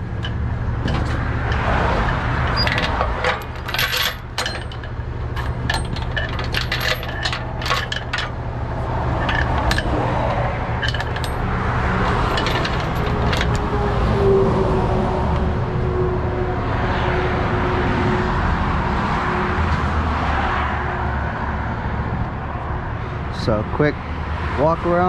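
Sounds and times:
chains clinking on metal: 0.0 - 13.7
truck engine idling: 0.0 - 14.2.

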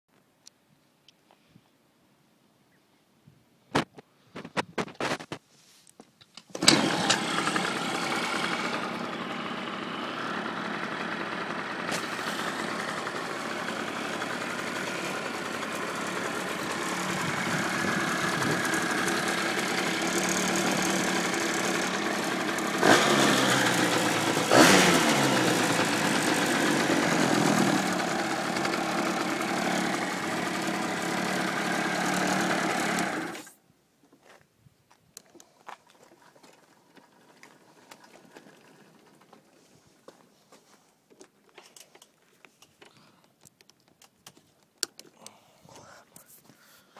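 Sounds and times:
quad bike engine idling: 6.6 - 33.5, 36.1 - 39.6.

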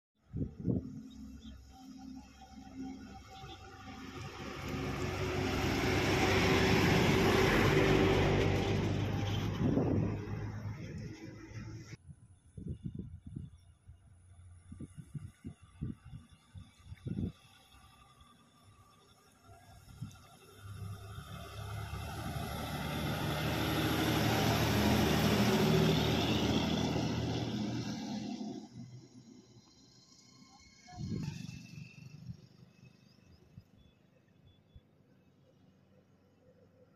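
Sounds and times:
heavy truck driving past: 0.4 - 12.0, 20.6 - 33.3.

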